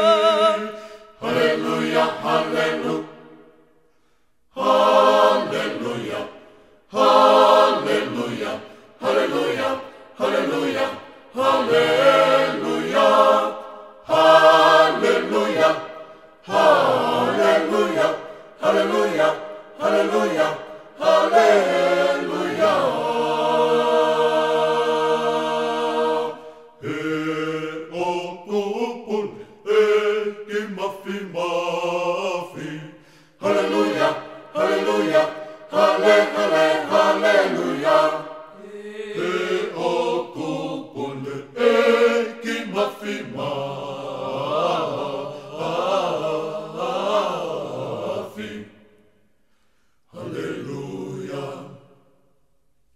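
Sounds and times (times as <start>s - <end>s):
choir singing in harmony: 0.0s - 3.8s, 4.5s - 49.3s, 50.0s - 52.3s.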